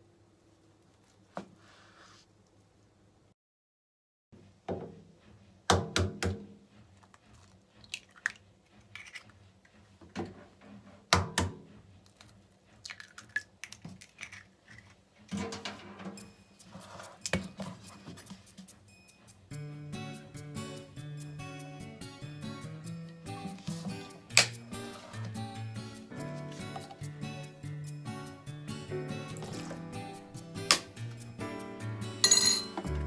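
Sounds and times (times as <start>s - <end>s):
eggshell crackling: 12.1s - 15.0s.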